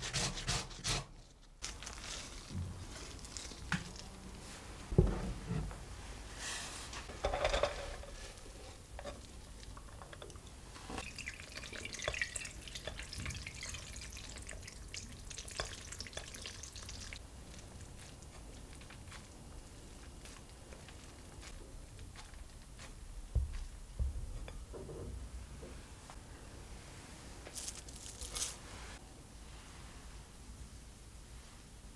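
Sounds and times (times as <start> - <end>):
handling rustles: 1.2 - 9.3, 27.3 - 29.0
spatula squishing wet potato: 1.7 - 4.9, 8.3 - 23.1.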